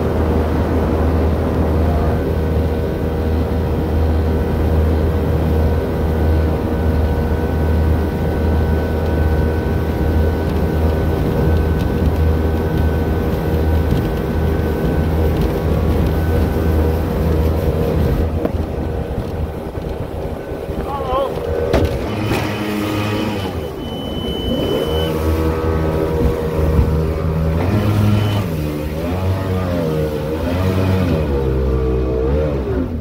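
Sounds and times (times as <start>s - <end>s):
outboard motor running: 0.0s - 33.0s
water rushing past hull: 0.0s - 33.0s.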